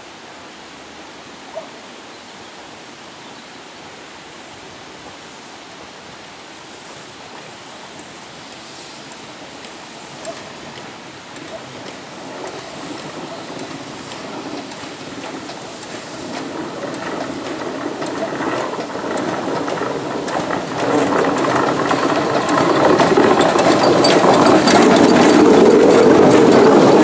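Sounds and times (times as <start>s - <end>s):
steam hissing: 6.5s - 27.0s
steam locomotive chuffing: 7.9s - 27.0s
rhythmic ticking of wheels: 9.1s - 27.0s.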